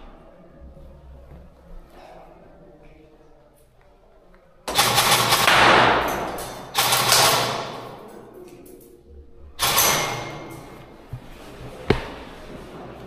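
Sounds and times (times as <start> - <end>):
airsoft gunfire bursts: 4.7 - 6.1, 6.7 - 7.9.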